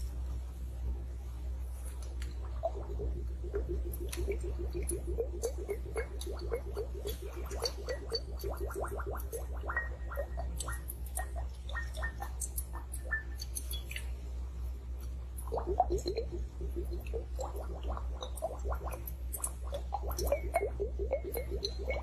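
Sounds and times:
liquid gurgling in glass: 2.4s - 14.0s, 15.4s - 22.0s.

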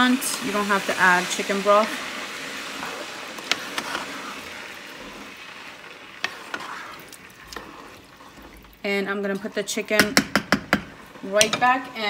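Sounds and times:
wooden spoon stirring in a pot: 0.0s - 12.0s
spoon knocking against pot: 10.0s - 11.8s.

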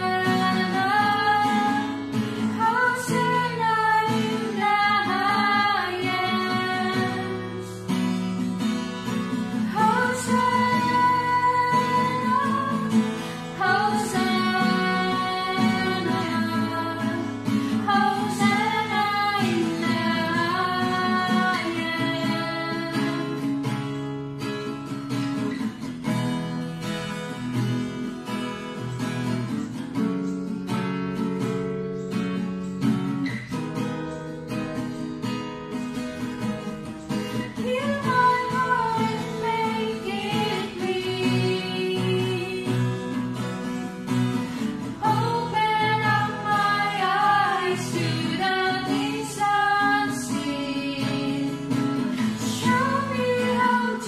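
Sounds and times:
women singing worship song: 0.0s - 7.6s, 9.6s - 23.4s, 37.5s - 43.0s, 44.8s - 54.0s
strummed acoustic guitar: 0.0s - 54.0s.

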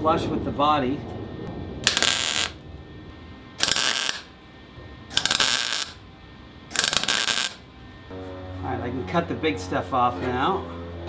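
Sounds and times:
welder crackling bursts: 1.8s - 2.6s, 3.6s - 4.3s, 5.1s - 6.0s, 6.7s - 7.6s.

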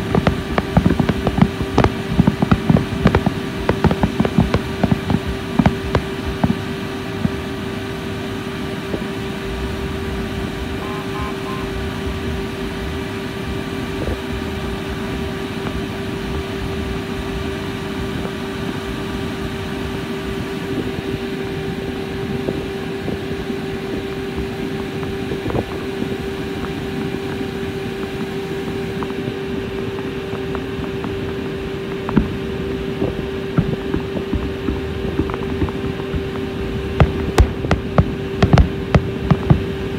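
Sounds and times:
fireworks bangs: 0.0s - 7.6s, 33.0s - 39.9s
boat engine droning: 0.0s - 39.9s.

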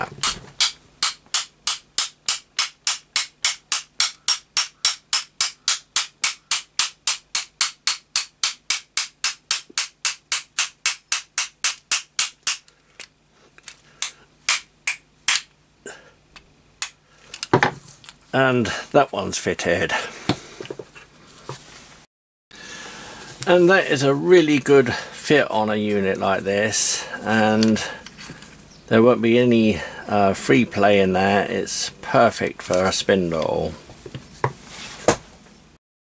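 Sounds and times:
mallet tapping metal: 0.2s - 12.6s.

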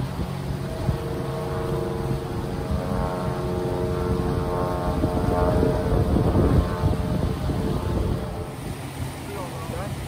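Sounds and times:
engine drone: 0.0s - 10.0s
wind buffeting microphone: 0.0s - 10.0s
river rushing: 8.3s - 10.0s.

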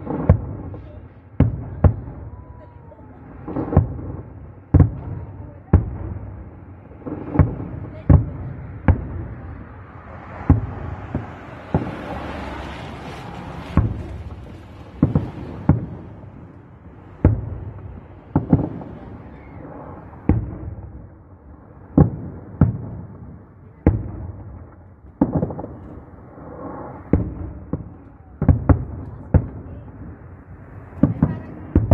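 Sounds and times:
firework shells bursting: 10.4s - 20.6s.

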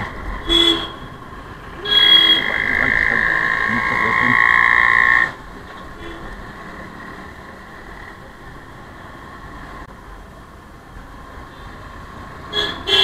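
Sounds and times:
motorcycle riding in traffic: 0.0s - 13.0s.

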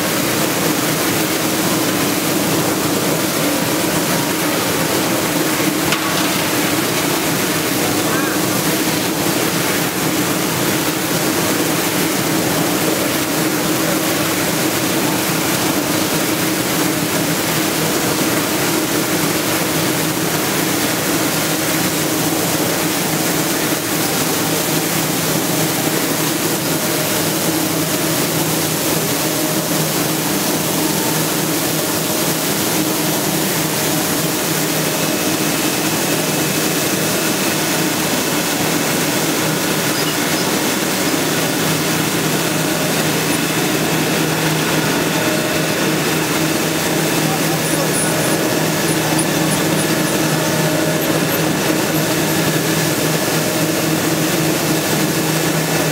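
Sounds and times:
washer motor hum: 0.0s - 55.9s
water sprays hissing: 0.1s - 17.1s, 33.0s - 55.8s.

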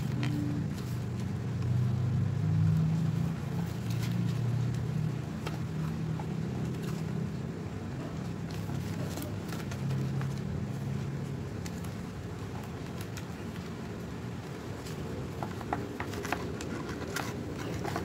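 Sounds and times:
paper being folded: 2.6s - 18.0s.

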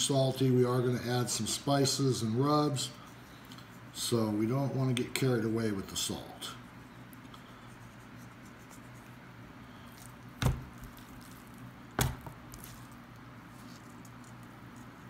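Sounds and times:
low steady hum: 0.0s - 15.0s
dull thumps on wooden board: 10.4s - 10.7s.

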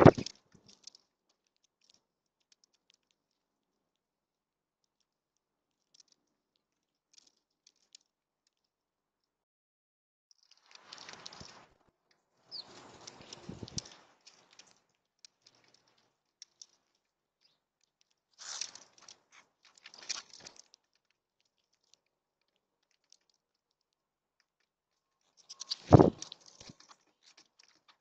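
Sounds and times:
bird wings fluttering: 0.0s - 0.3s, 12.5s - 14.5s, 25.5s - 26.8s
clicks of bird feet and beaks: 5.8s - 8.6s, 10.4s - 11.8s, 12.5s - 24.7s, 25.3s - 28.0s
bird landing thump: 25.9s - 26.2s.

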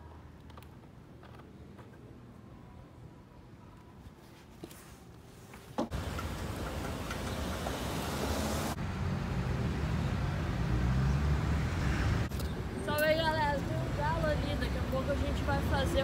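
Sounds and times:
cars passing: 5.9s - 16.0s.

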